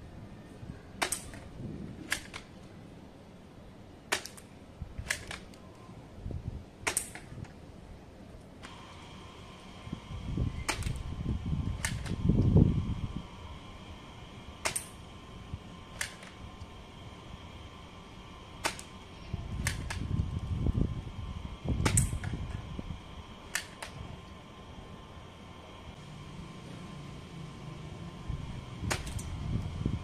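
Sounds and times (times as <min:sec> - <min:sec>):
toy gun shots snapping: 0:01.0 - 0:02.5, 0:04.1 - 0:05.6, 0:06.8 - 0:07.3, 0:10.7 - 0:11.0, 0:11.8 - 0:12.2, 0:14.6 - 0:15.0, 0:16.0 - 0:16.4, 0:18.6 - 0:18.9, 0:19.6 - 0:20.1, 0:21.8 - 0:22.3, 0:23.5 - 0:24.0, 0:28.9 - 0:29.3
low rumble: 0:01.5 - 0:02.2.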